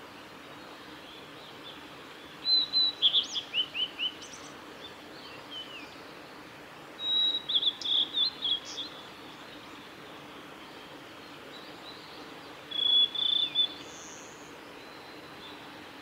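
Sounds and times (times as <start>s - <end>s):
bird singing whistled phrases: 2.5s - 4.1s, 7.0s - 8.9s, 12.7s - 14.3s.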